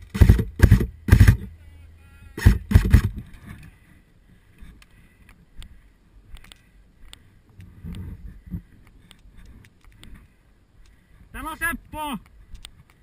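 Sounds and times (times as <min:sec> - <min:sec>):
faint clicks: 0:04.6 - 0:11.1, 0:12.2 - 0:13.0
wind on microphone: 0:07.5 - 0:10.3.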